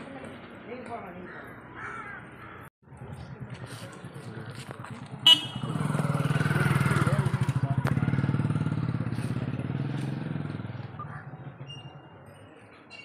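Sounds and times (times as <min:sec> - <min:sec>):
motorcycle passing by: 0:03.3 - 0:12.4.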